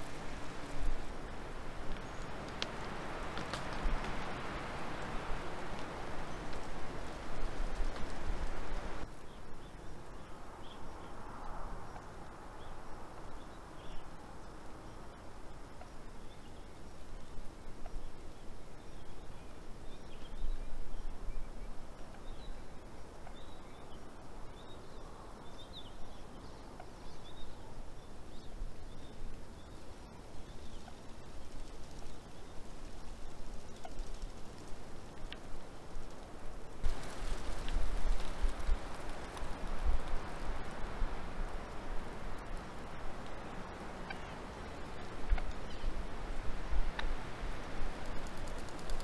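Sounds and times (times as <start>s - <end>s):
steady background hiss: 0.0s - 49.0s
faint bird chirps: 43.6s - 46.0s.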